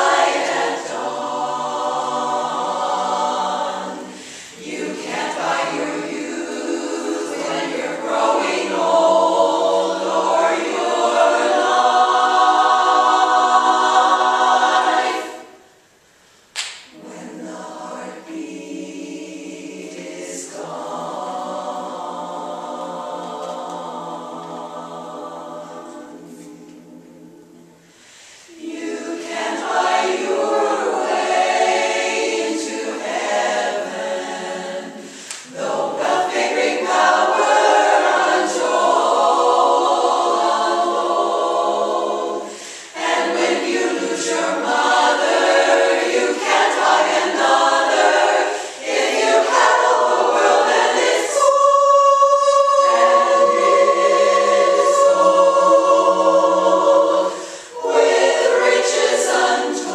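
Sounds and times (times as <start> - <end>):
women's a cappella chorus singing: 0.0 - 59.9
singers breathing: 4.0 - 4.6, 27.8 - 28.6, 35.0 - 35.5, 42.4 - 43.0, 48.4 - 48.9, 57.3 - 57.8.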